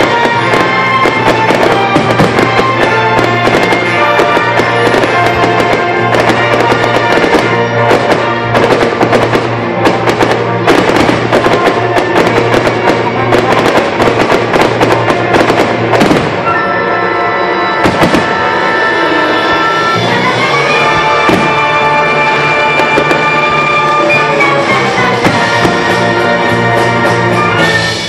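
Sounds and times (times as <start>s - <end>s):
fireworks bangs: 0.0s - 28.0s
loud music: 0.0s - 28.0s.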